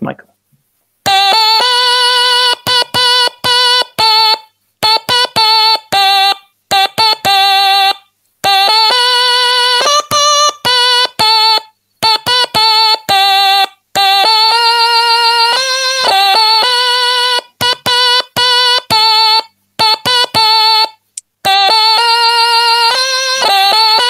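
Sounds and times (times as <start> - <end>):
buzzy electronic stylophone melody: 1.0 - 24.0.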